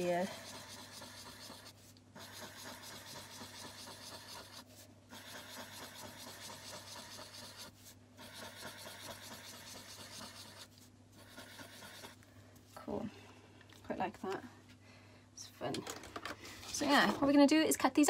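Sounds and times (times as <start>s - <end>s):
marker scratching on card: 0.0s - 12.2s.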